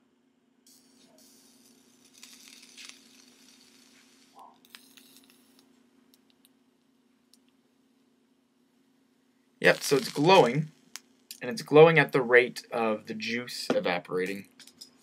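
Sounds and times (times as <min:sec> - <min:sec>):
liquid sizzling on hot coils: 0:00.7 - 0:05.7, 0:09.6 - 0:11.4.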